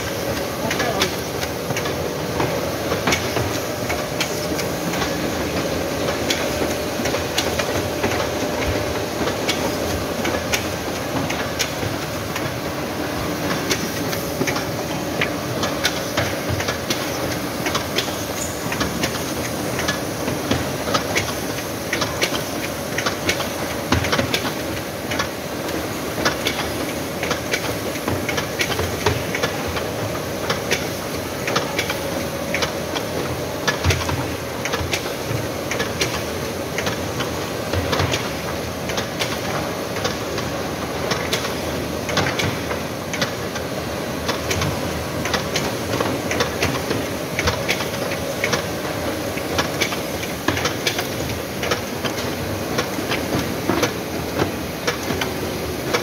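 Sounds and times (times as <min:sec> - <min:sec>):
binding machine clattering: 0:13.3 - 0:56.0.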